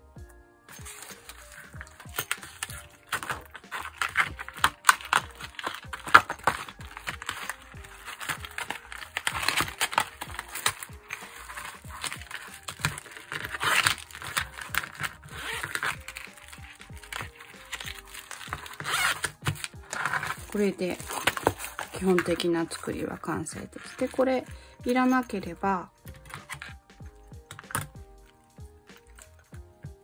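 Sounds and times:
soft background music: 0.0 - 30.0
plastic sheet crinkling: 0.7 - 29.6.

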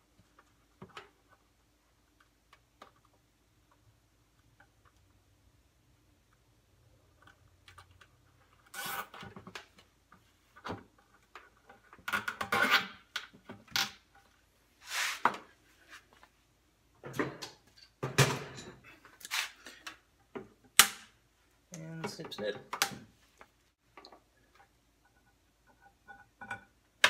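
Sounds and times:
scraping handling noises: 14.8 - 16.3, 18.6 - 20.0.

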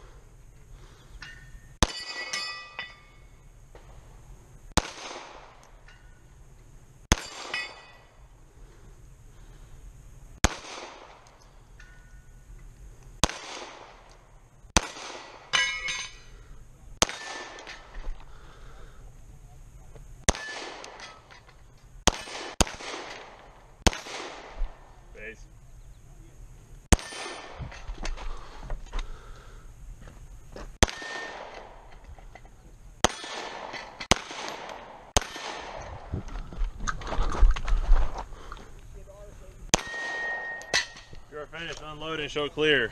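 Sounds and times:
steel plate ringing: 1.2 - 3.4, 7.1 - 8.2, 15.5 - 16.3, 39.8 - 41.2
pistol shots: 4.8 - 5.7, 7.1 - 7.9, 10.4 - 11.4, 13.2 - 14.2, 14.8 - 15.7, 17.0 - 18.0, 20.3 - 21.3, 22.0 - 24.9, 26.9 - 27.8, 30.8 - 32.0, 33.0 - 36.1, 39.7 - 41.2.

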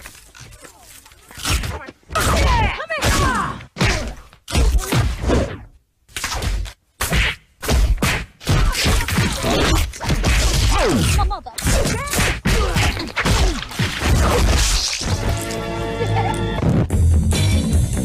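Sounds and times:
music: 15.1 - 18.0.

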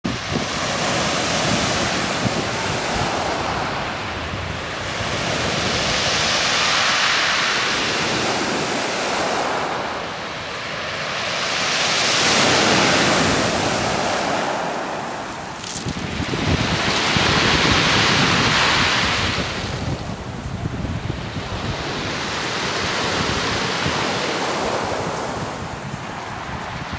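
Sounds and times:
waves breaking on pebble beach: 0.1 - 26.9
pebbles rattling: 15.6 - 16.0.

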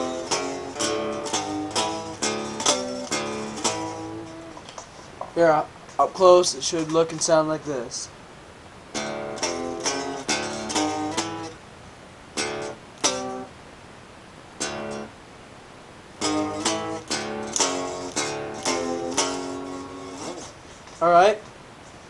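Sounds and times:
clean electric guitar riff: 0.0 - 4.7, 8.9 - 11.6, 12.4 - 13.6, 14.6 - 15.2, 16.2 - 20.6.

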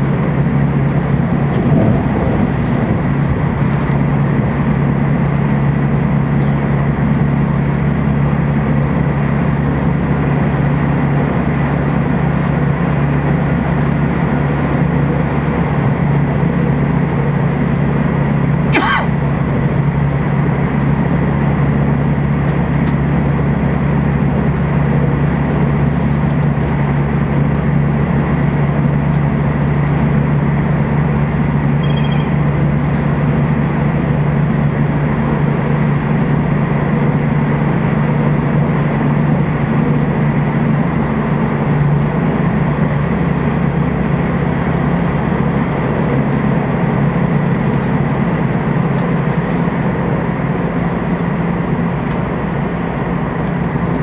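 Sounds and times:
train running hum: 0.0 - 54.0
rushing noise: 1.0 - 5.4.

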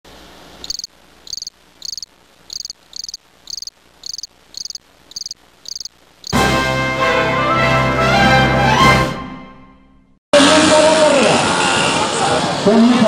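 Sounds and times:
cricket chirping: 0.6 - 6.4.

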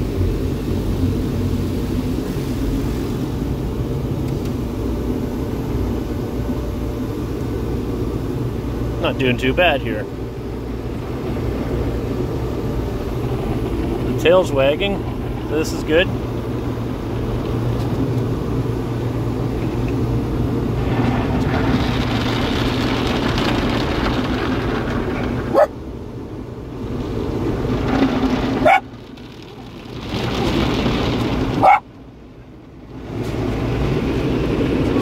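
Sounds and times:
car wash brushes on vehicle: 0.0 - 6.4, 7.1 - 35.0
car wash water spray: 0.0 - 6.5, 7.1 - 35.0
small dog barking: 25.5 - 25.7, 28.6 - 28.8, 31.6 - 31.8.

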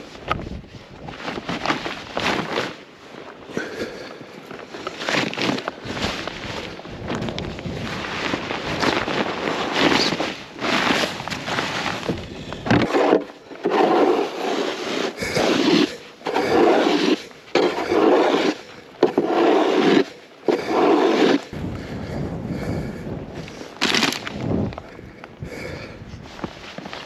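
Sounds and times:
snow crunched and scraped on ice: 0.0 - 21.6, 23.4 - 25.0, 26.2 - 27.0.

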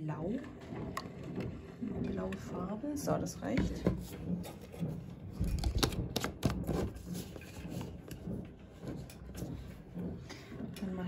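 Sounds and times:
plastic bottles knocking: 3.4 - 10.2.

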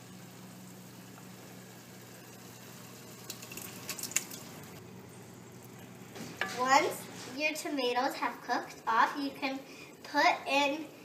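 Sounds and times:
steady low hum: 0.0 - 11.0
wet plops of tomatoes: 3.3 - 4.5.

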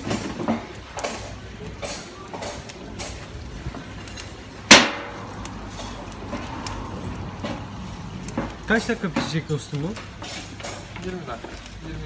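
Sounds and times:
fire iron knocking in oven: 4.7 - 5.3, 7.3 - 11.1
loud metal clank: 4.7 - 5.3.

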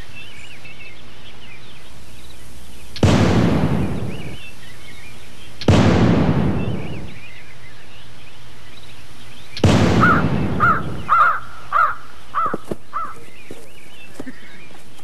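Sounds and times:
loud gunshot: 3.0 - 4.5, 5.6 - 7.4, 9.6 - 11.4
crow cawing: 10.0 - 13.3.

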